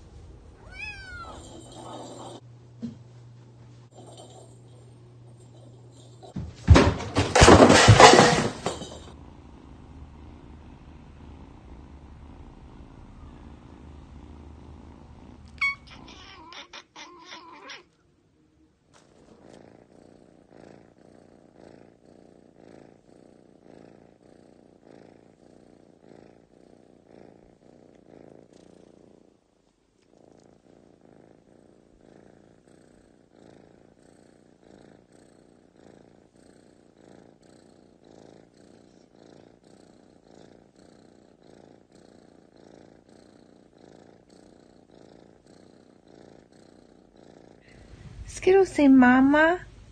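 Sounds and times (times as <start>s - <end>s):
cat purring: 0.0s - 6.4s, 7.8s - 49.9s.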